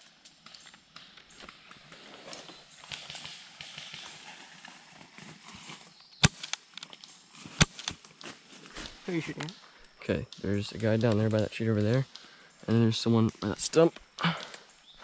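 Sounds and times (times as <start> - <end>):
leaves rustling: 0.0 - 9.9.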